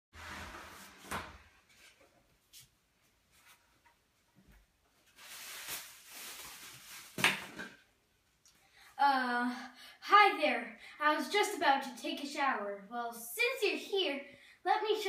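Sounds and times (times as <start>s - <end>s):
cloth rustling: 1.7s - 7.5s.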